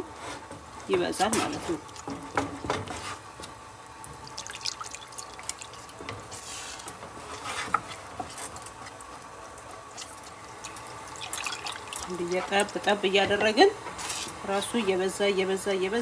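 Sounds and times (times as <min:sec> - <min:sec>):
wet stirring of thick sauce: 0:01.1 - 0:13.0.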